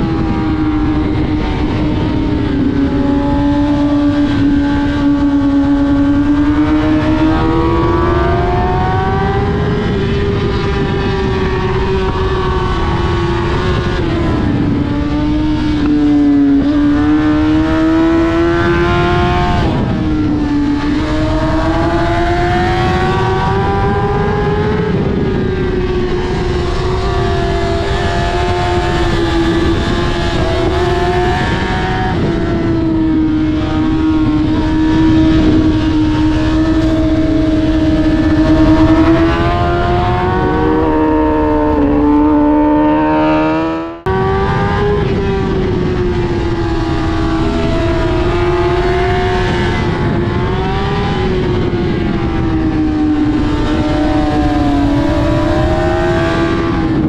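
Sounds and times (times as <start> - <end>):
motorcycle engine at high revs: 0.0 - 57.0
wind noise: 0.0 - 57.0.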